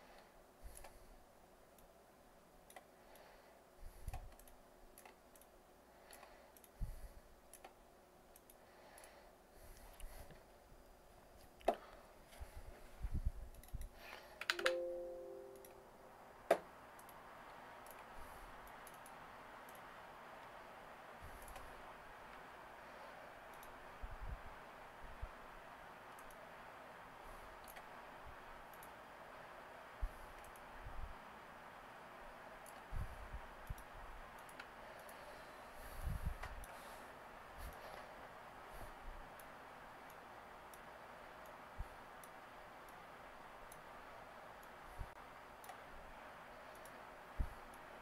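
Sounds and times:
faint steady hiss: 0:00.0 - 0:48.0
computer mouse clicks: 0:00.1 - 0:01.1, 0:02.6 - 0:03.3, 0:03.9 - 0:10.4, 0:13.4 - 0:14.7, 0:16.5 - 0:17.2, 0:17.8 - 0:20.6, 0:21.2 - 0:22.5, 0:23.5 - 0:23.9, 0:26.1 - 0:26.5, 0:27.6 - 0:27.9, 0:28.6 - 0:29.0, 0:30.1 - 0:30.7, 0:32.6 - 0:32.9, 0:33.6 - 0:36.9, 0:39.3 - 0:43.1, 0:43.7 - 0:43.9, 0:45.6 - 0:45.9, 0:46.6 - 0:47.9.

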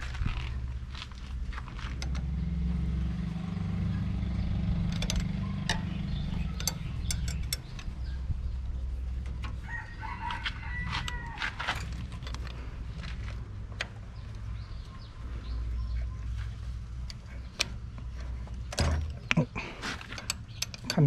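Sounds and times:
steady low rumble: 0:00.0 - 0:21.0
rooster crowing: 0:09.6 - 0:11.7.

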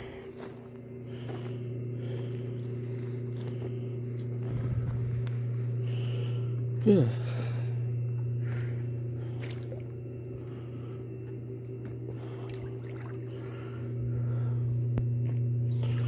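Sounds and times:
jet pump humming: 0:00.0 - 0:16.0
water sloshing: 0:09.2 - 0:10.0, 0:12.1 - 0:13.5.

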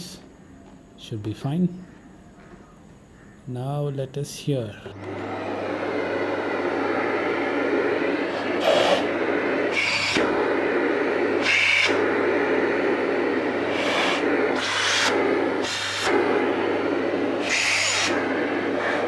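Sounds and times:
airflow hiss surging: 0:03.5 - 0:19.0
vacuum cleaner running: 0:04.8 - 0:19.0.

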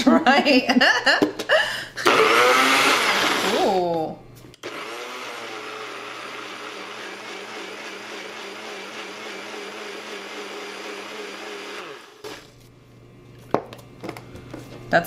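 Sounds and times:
blender motor running: 0:02.0 - 0:03.9, 0:04.6 - 0:12.6.

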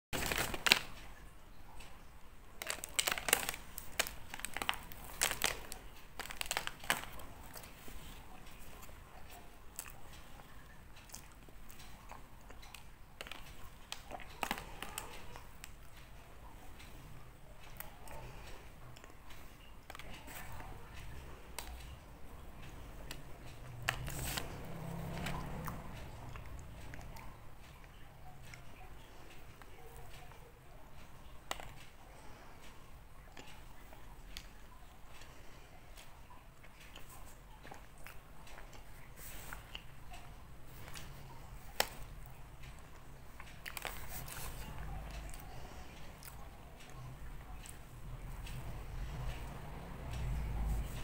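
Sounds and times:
paper wrapping crinkling: 0:00.2 - 0:01.3, 0:02.6 - 0:09.4, 0:12.6 - 0:16.0, 0:23.8 - 0:25.4, 0:43.4 - 0:45.6.

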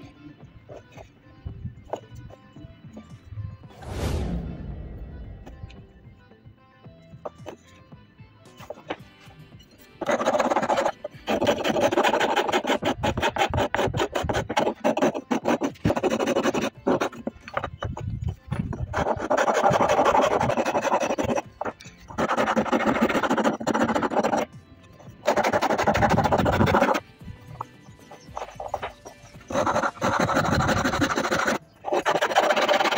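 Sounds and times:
metal file rasping on wood: 0:10.0 - 0:32.9.

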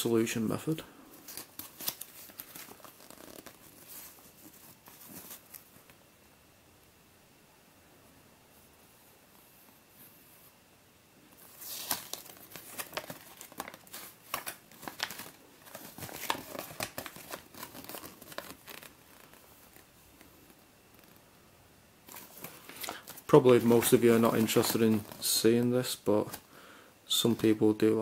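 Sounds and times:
paper rustling and crinkling: 0:01.1 - 0:05.9, 0:11.4 - 0:21.2, 0:22.1 - 0:26.5.

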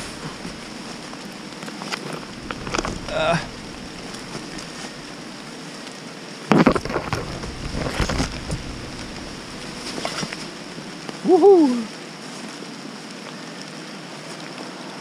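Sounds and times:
branches scraping across microphone: 0:00.0 - 0:05.8, 0:06.5 - 0:11.2
rain pattering on jackets and leaves: 0:00.0 - 0:15.0.

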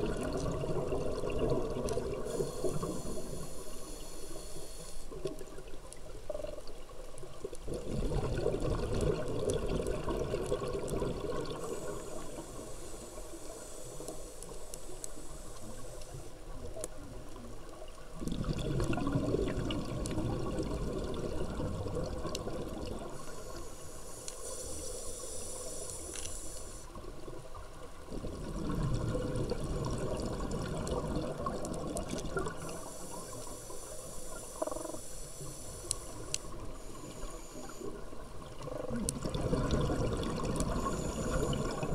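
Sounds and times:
exhaled bubbles underwater: 0:00.0 - 0:03.5, 0:05.2 - 0:12.7, 0:17.9 - 0:23.3, 0:27.1 - 0:41.9
regulator inhale hissing: 0:02.1 - 0:05.3, 0:11.5 - 0:16.4, 0:23.0 - 0:27.0, 0:32.5 - 0:38.1, 0:40.6 - 0:41.9.

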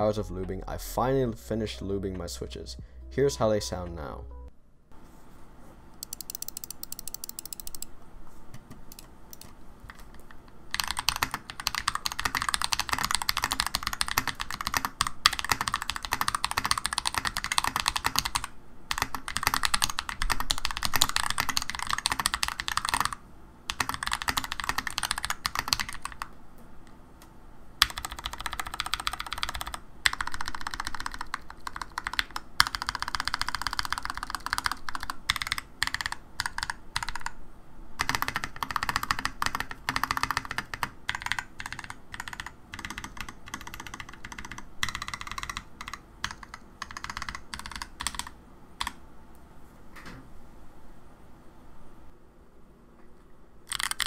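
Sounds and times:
mechanical keyboard typing: 0:06.0 - 0:07.9, 0:08.9 - 0:26.3, 0:27.8 - 0:37.4, 0:38.0 - 0:49.0, 0:53.7 - 0:54.0.

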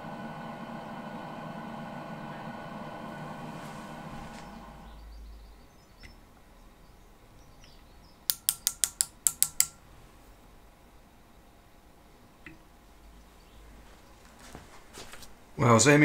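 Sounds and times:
metal lathe running down: 0:00.0 - 0:05.0
micrometer ratchet clicking: 0:08.3 - 0:09.8.

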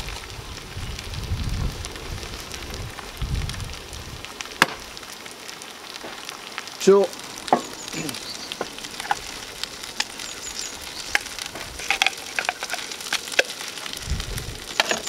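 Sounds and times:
greens sizzling in a frying pan: 0:00.0 - 0:15.0
sharp clicks and knocks: 0:14.8 - 0:15.0.

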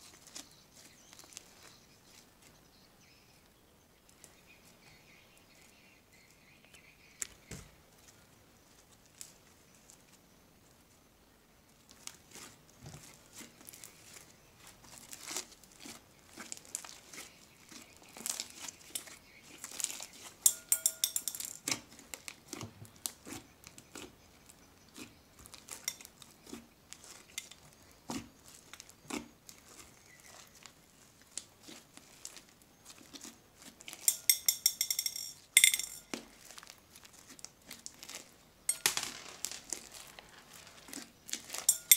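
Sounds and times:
slime squelching and crackling: 0:00.0 - 0:02.3, 0:11.8 - 0:20.4, 0:21.6 - 0:34.1, 0:36.0 - 0:38.4, 0:39.2 - 0:41.8.

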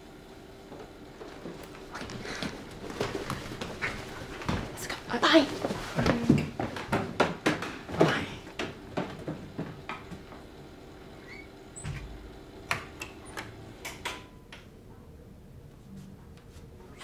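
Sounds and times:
footsteps: 0:00.8 - 0:10.2.

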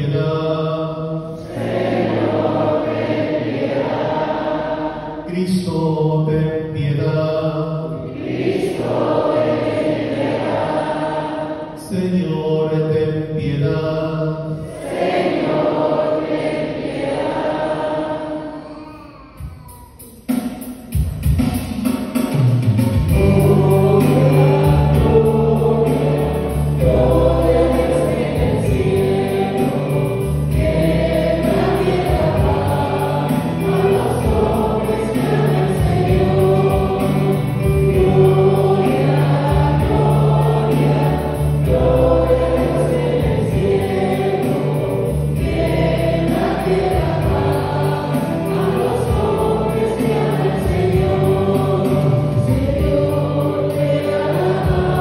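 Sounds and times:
choir singing a hymn: 0:00.0 - 0:19.0, 0:22.9 - 0:55.0
instrumental accompaniment: 0:14.9 - 0:55.0
sustained bass notes: 0:23.1 - 0:55.0.

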